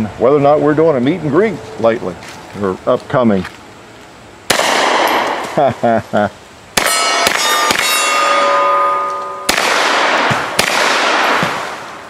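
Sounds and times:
gunshots: 4.5 - 5.6, 6.8 - 8.8, 9.4 - 12.0
steel targets ringing: 6.8 - 11.3.

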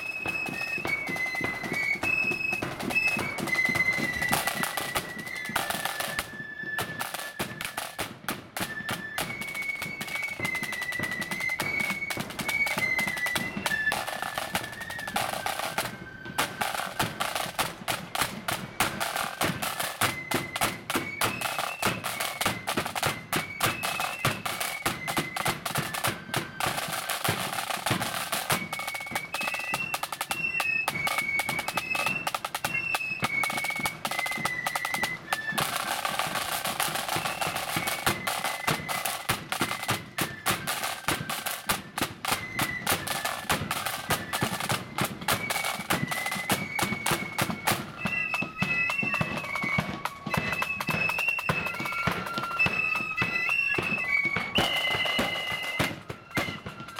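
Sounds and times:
flutes playing melody: 0.0 - 56.9
side drum strokes and rolls: 0.0 - 56.9.

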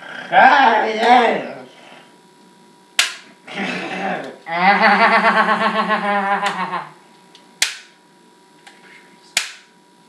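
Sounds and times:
sharp loud snaps: 3.0 - 3.4, 7.6 - 8.0, 9.3 - 9.7
person laughing: 3.5 - 7.0.

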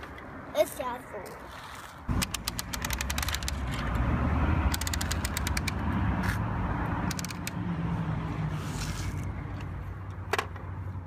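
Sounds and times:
toy winch clicking: 2.2 - 3.9, 4.7 - 5.8.

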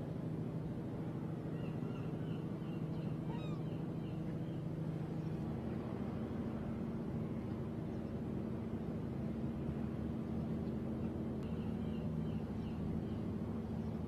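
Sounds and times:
low engine hum: 0.0 - 14.0
short bird calls: 1.5 - 4.2.

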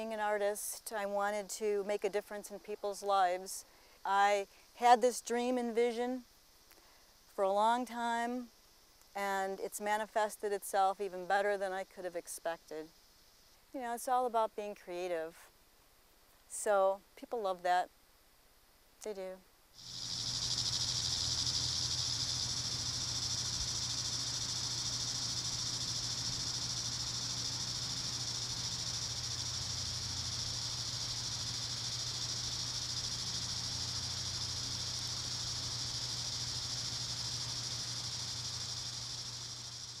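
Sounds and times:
cicadas buzzing: 0.0 - 14.2, 19.8 - 40.0
faint low hum: 17.9 - 40.0.

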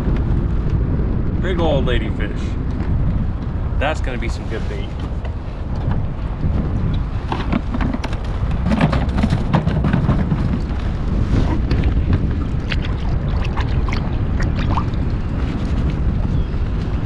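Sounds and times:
wind buffeting microphone: 0.0 - 17.0
water slapping against kayak hull: 6.9 - 16.3.

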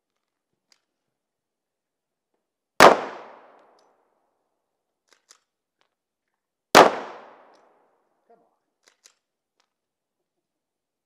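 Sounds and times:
pistol shot with echo: 2.8 - 3.6, 6.8 - 7.5.

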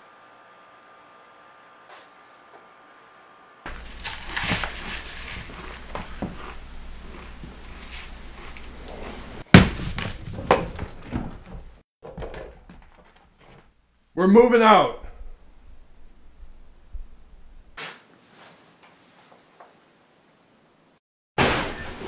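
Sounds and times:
scraping and knocks: 3.7 - 13.8
loud crash: 21.4 - 22.0.

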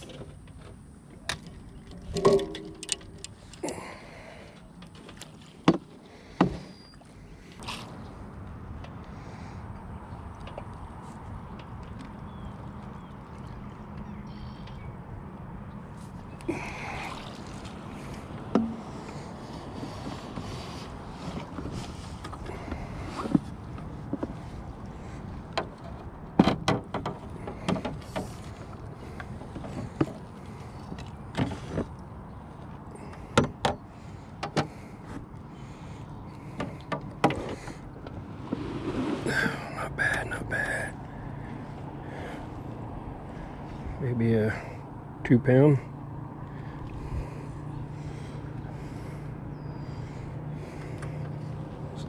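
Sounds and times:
knocks against aluminium boat: 18.5 - 18.9.

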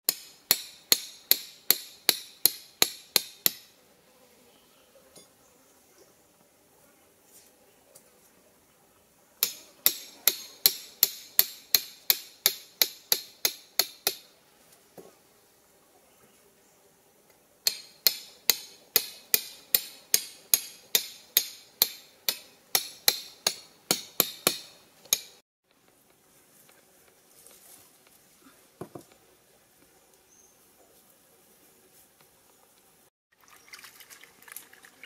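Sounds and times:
hatchet hammering steel stake: 0.1 - 3.7, 9.4 - 14.3, 17.6 - 25.4.

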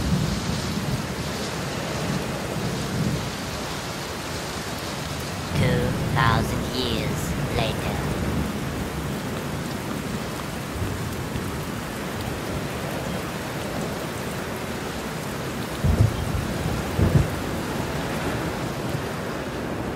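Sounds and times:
steady rain: 0.0 - 19.9
thunder rumbles: 15.8 - 17.6.

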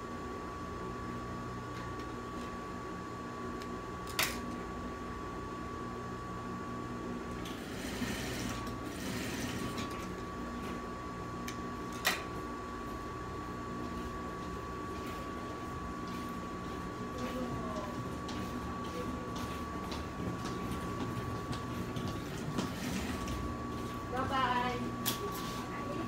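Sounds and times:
sewing machine motor hum: 7.3 - 10.8, 13.9 - 26.0
sewing machine stitching: 7.5 - 10.0.

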